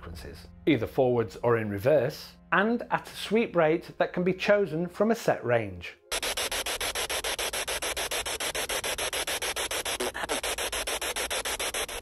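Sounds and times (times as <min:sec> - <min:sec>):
pulsing radio static: 0:06.1 - 0:12.0.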